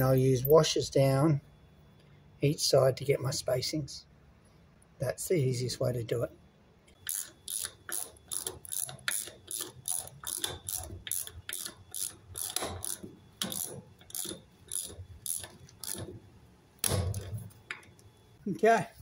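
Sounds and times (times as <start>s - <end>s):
ratchet wrench clicking: 7.0s - 16.1s.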